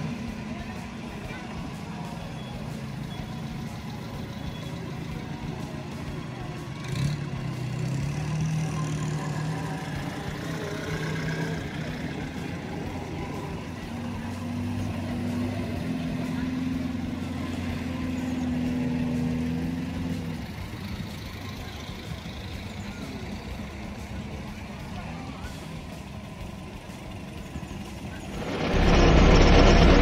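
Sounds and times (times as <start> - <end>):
cars driving slowly past: 0.0 - 30.0
steady higher engine note: 28.2 - 30.0.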